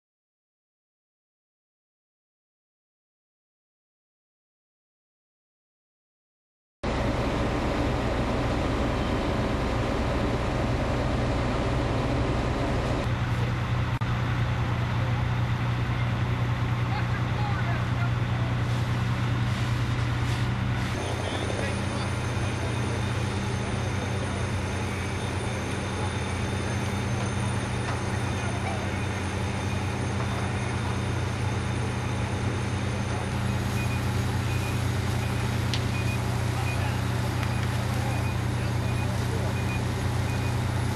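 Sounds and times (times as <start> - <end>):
heavy vehicle engine running: 6.9 - 40.9
short high-pitched beeps: 21.0 - 40.7.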